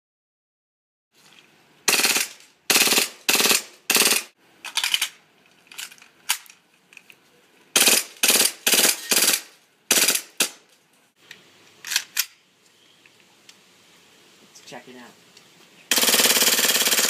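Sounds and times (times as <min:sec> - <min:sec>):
airsoft gun firing bursts: 0:01.9 - 0:04.3, 0:07.8 - 0:10.6, 0:15.9 - 0:17.0.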